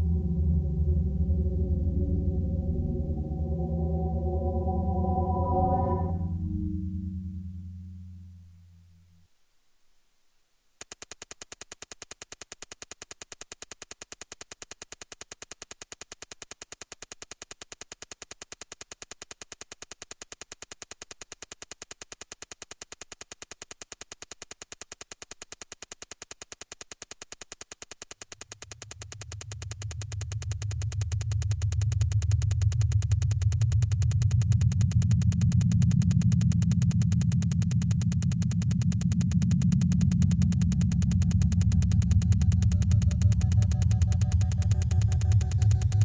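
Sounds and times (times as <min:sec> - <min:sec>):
low synthesized bass drone: 0:00.0 - 0:09.2, 0:28.8 - 0:46.0
sharp digital clicks: 0:10.8 - 0:46.0.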